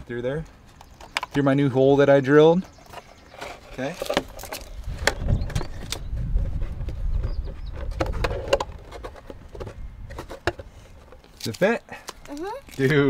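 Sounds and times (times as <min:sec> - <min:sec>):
wind rumble on microphone: 0:04.6 - 0:11.0.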